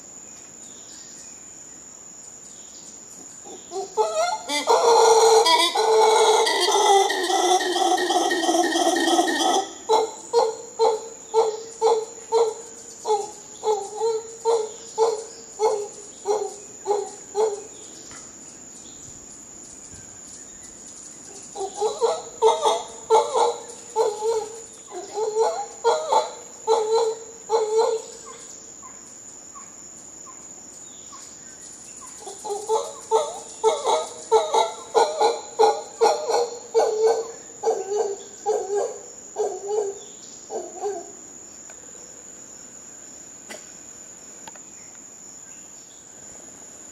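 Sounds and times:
insect whine: 0:00.0 - 0:46.9
howler monkey grunting calls: 0:03.4 - 0:17.8, 0:21.3 - 0:28.5, 0:32.2 - 0:41.2.

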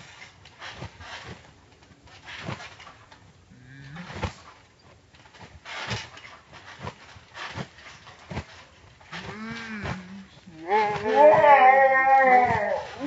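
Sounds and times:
slowed trampoline thumps: 0:00.0 - 0:13.0
deep slowed voice: 0:09.3 - 0:11.0.

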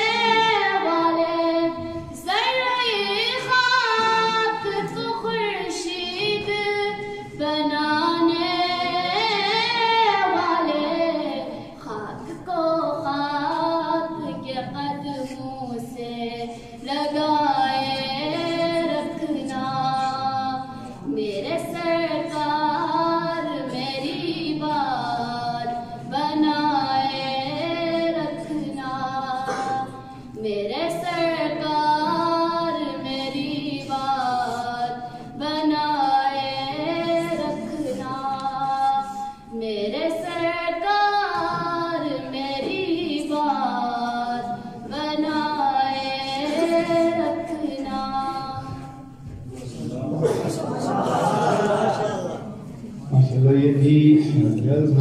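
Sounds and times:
young voice singing unaccompanied: 0:00.0 - 0:49.4
singer breathing: 0:39.0 - 0:39.6.

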